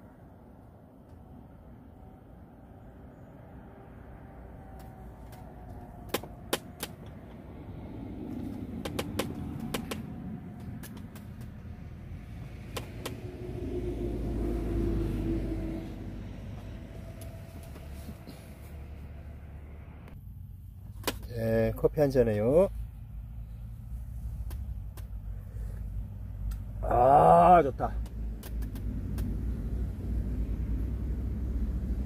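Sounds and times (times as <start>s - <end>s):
vehicle engine rumble passing: 0.0s - 21.0s, 21.6s - 32.0s
sharp clicks and ticks: 8.4s - 11.7s, 12.6s - 13.3s, 28.0s - 29.4s.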